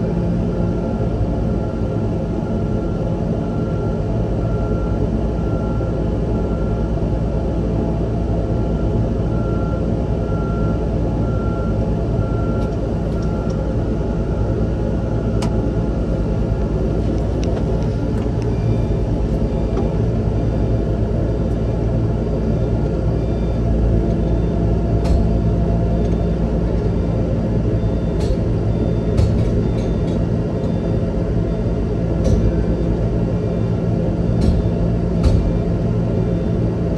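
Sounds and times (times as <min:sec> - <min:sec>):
machine engine droning: 0:00.0 - 0:36.9
pulsing beep: 0:17.9 - 0:36.9.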